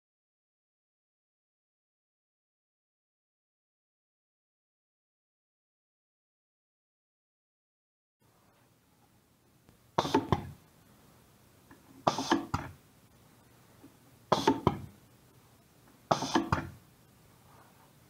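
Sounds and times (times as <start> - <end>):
pneumatic valve clacking: 16.1 - 16.7.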